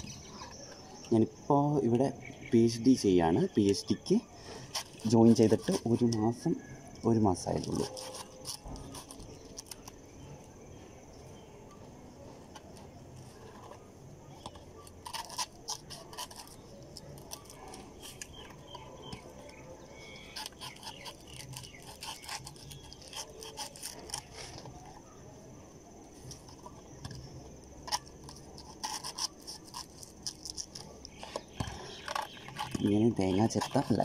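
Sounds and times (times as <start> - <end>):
knife cutting coconut husk: 4.6 - 6.4, 7.4 - 10.0, 12.6 - 25.2, 26.2 - 34.0.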